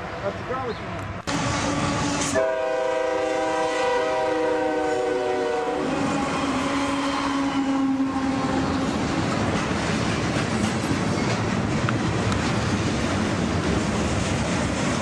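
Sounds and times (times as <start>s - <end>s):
model locomotive horn: 1.3s - 8.8s
model train running on track: 1.3s - 15.0s.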